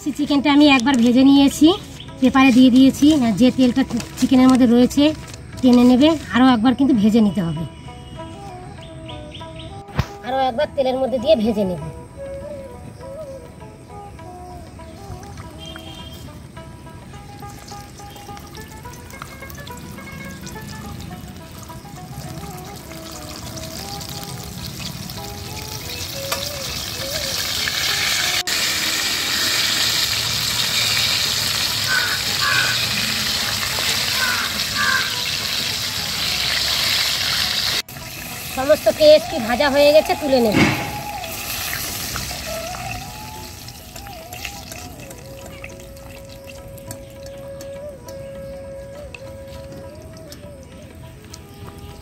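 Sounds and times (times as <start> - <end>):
wavering background music note: 5.8 - 29.2
chicken deep-frying in oil: 17.5 - 47.4.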